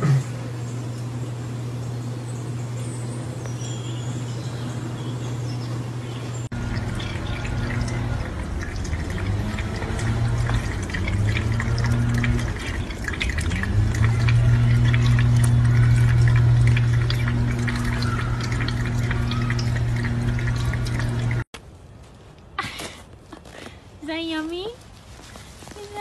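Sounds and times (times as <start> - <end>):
steady low hum: 0.0 - 24.1
faint high bird chirps: 1.7 - 6.5
water splashing and dripping: 6.4 - 21.5
faucet running into metal sink: 6.5 - 21.4.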